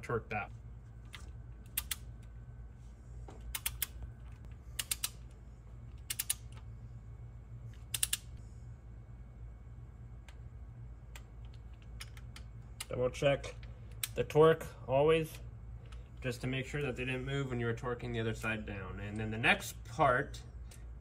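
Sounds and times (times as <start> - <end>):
low hum: 0.0 - 21.0
torque wrench clicking: 4.8 - 5.2, 6.0 - 6.6, 7.8 - 8.3.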